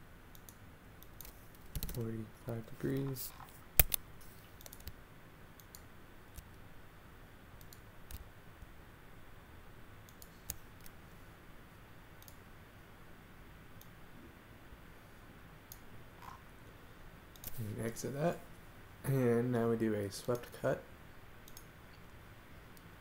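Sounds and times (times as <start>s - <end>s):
computer mouse clicks: 0.3s - 2.0s, 3.8s - 5.0s, 5.6s - 6.6s, 7.6s - 8.3s, 10.1s - 11.0s, 12.2s - 12.4s, 13.8s - 14.0s, 15.7s - 16.4s, 17.3s - 17.6s, 21.4s - 21.7s.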